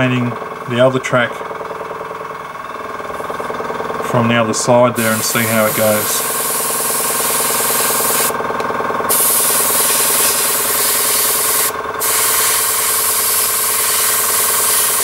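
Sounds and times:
air compressor humming: 0.0s - 15.0s
airbrush hissing: 5.0s - 8.4s, 9.1s - 15.0s.

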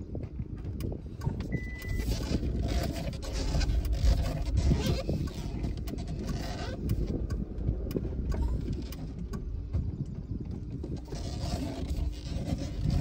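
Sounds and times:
vehicle engine and road rumble: 0.0s - 13.0s
wind buffeting microphone: 0.0s - 13.0s.

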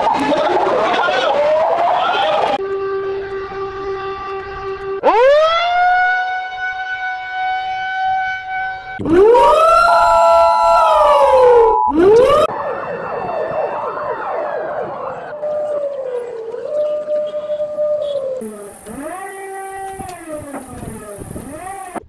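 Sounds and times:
siren tone sweeping up: 5.0s - 22.0s
warbling gliding tones: 10.0s - 15.8s
steady buzzing alarm tone: 18.4s - 22.0s.

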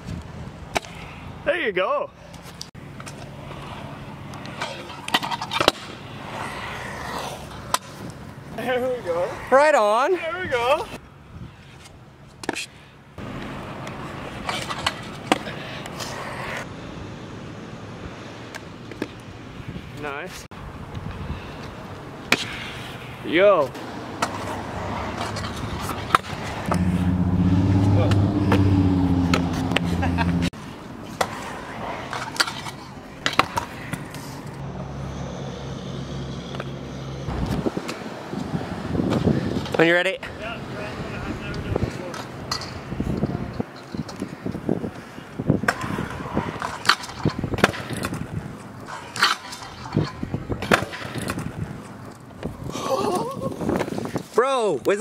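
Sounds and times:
scooter wheels rolling on concrete: 0.0s - 35.1s, 36.2s - 55.0s
scooter clacking on ground: 45.6s - 52.6s.

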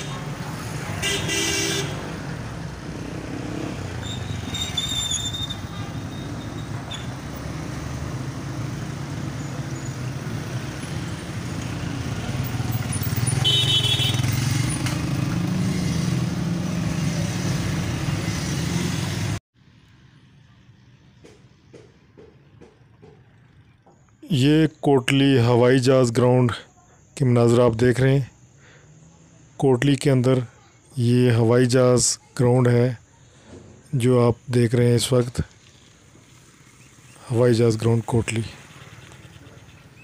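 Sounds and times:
motorcycle engines running: 0.0s - 24.2s, 35.1s - 40.0s
faint outdoor background: 0.0s - 40.0s
short horn toots: 13.4s - 14.3s.

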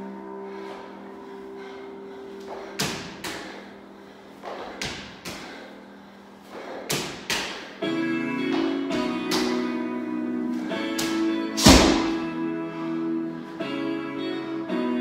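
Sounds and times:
held music chord: 0.0s - 3.1s, 7.8s - 15.0s.

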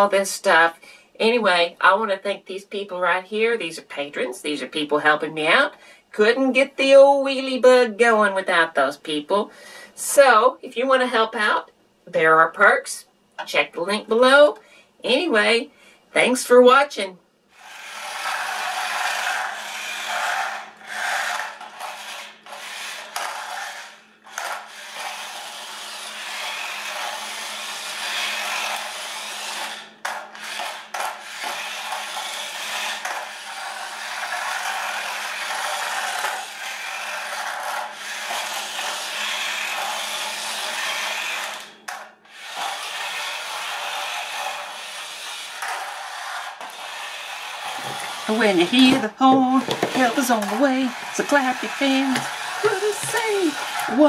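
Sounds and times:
toy car electric motor: 17.5s - 54.0s
plastic wheels rolling on floor: 17.6s - 54.0s.

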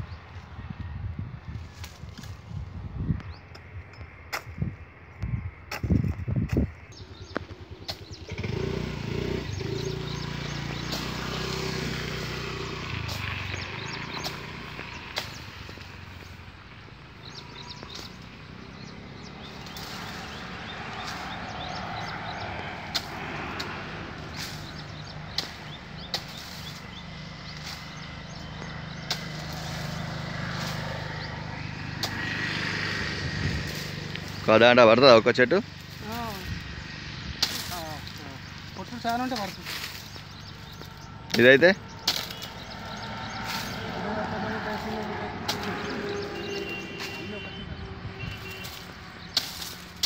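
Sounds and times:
vehicle engine running: 6.8s - 50.0s
blade striking tree trunk: 9.9s - 16.3s, 19.2s - 34.5s, 37.2s - 47.4s, 48.2s - 50.0s.

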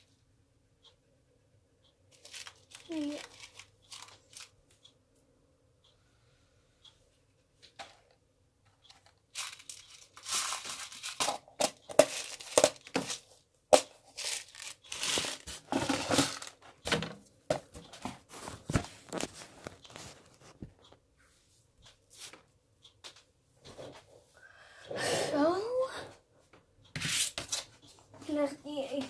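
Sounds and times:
plastic crinkling and rustling: 2.1s - 4.5s, 8.8s - 17.0s, 17.9s - 20.7s.

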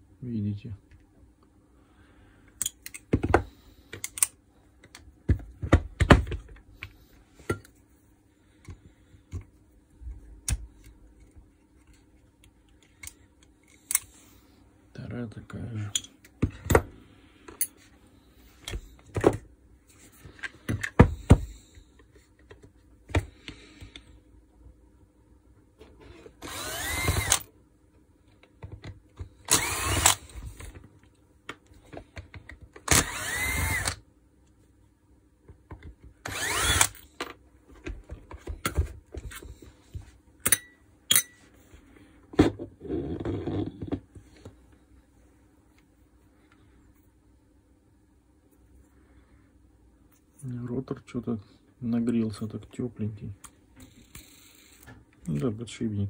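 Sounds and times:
cordless drill whirring: 26.2s - 27.5s, 29.4s - 30.7s, 32.8s - 34.0s, 36.2s - 37.0s
tools clicking and knocking: 40.4s - 41.4s.

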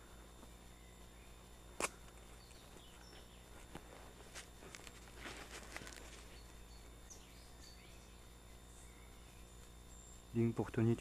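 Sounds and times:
footsteps in dry leaves: 2.4s - 6.6s.

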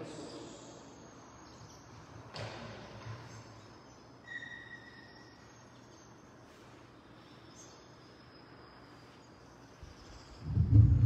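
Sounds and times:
low steady hum: 0.0s - 11.0s
brief high-pitched squeak: 4.2s - 5.3s.

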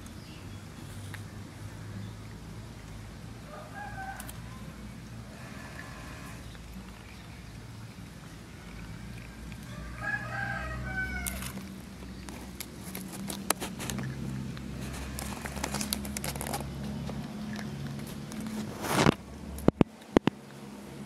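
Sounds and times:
rooster crowing: 3.5s - 4.7s, 9.7s - 11.6s.

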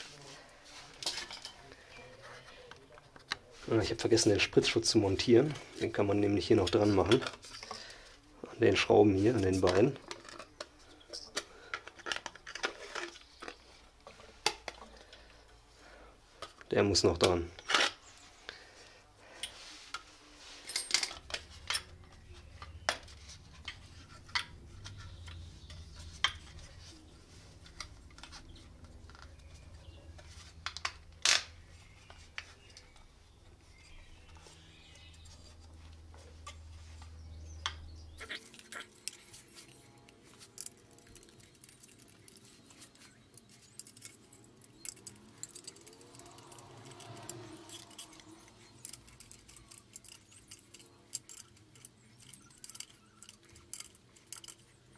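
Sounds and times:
small parts clicking and clinking: 19.4s - 26.9s, 38.2s - 54.9s.

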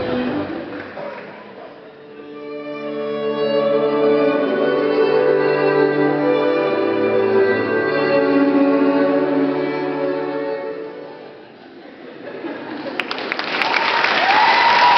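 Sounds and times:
violin music: 0.0s - 1.1s, 1.8s - 11.6s
audience applauding: 12.7s - 14.9s.

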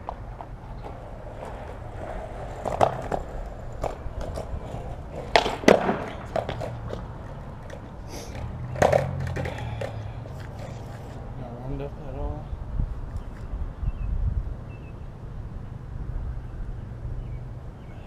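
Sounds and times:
skateboard landing clack: 0.0s - 10.7s
skateboard wheels rolling on concrete: 0.0s - 18.0s
skateboard tail pop: 5.2s - 7.0s, 7.6s - 10.5s.

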